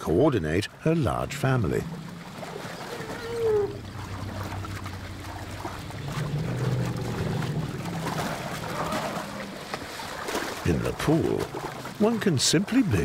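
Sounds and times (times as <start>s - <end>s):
water and mud splashing: 0.0s - 13.0s
low steady hum: 0.7s - 9.8s.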